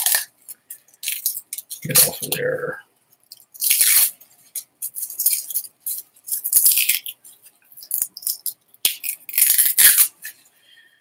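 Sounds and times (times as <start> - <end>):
cling wrap crinkling and tearing: 3.2 - 10.4.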